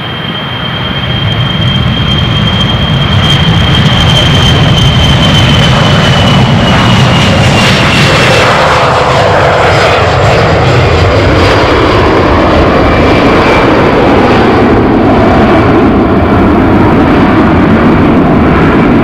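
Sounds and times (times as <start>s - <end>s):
jet engine roar with fan whine: 0.0s - 19.0s.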